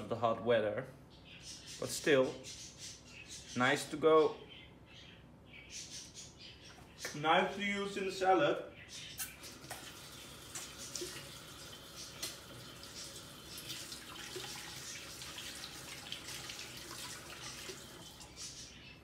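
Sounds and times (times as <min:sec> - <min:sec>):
water running from tap: 0:09.2 - 0:18.6.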